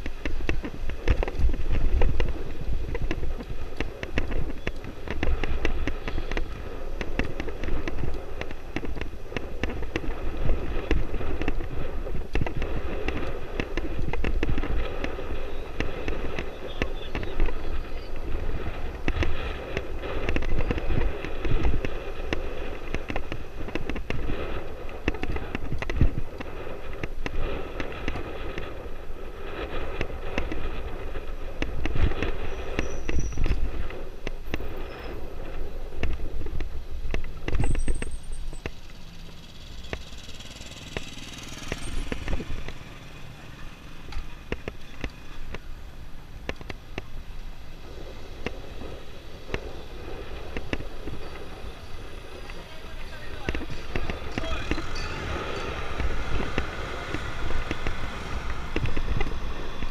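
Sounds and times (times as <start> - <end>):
dirt bike engine running: 0.0 - 59.9
wind buffeting microphone: 0.0 - 59.9
rapid rattle of clicks and knocks: 52.7 - 59.9.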